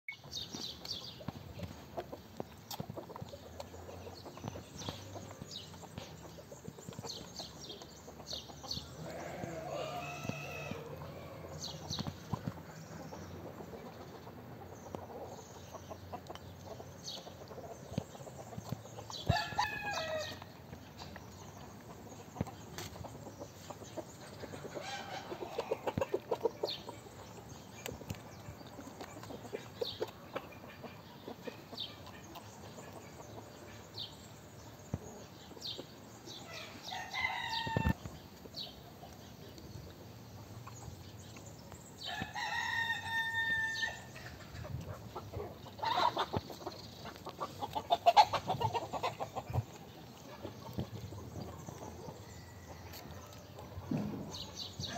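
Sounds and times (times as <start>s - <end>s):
hens clucking: 0.2s - 41.6s, 43.4s - 54.9s
rooster crowing: 42.4s - 44.1s.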